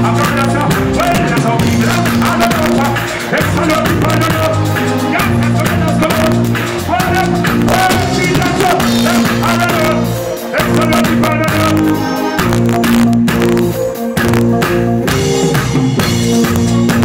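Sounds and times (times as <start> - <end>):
person singing: 0.0 - 14.1
bass: 0.0 - 17.0
drums: 0.0 - 17.0.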